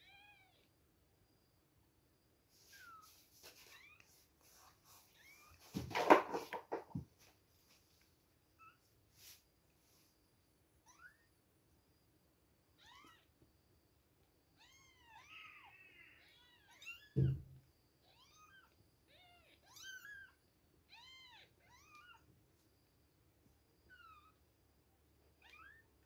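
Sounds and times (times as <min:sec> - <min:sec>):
low thump: 0:17.2 - 0:17.6.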